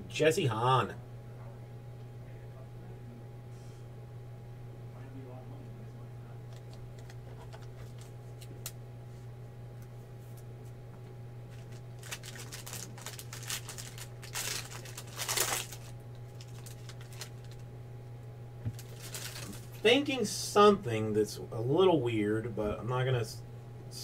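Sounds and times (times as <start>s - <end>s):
steady low hum: 0.0s - 24.0s
foil pack crinkling and tearing: 11.5s - 17.7s, 18.7s - 19.8s.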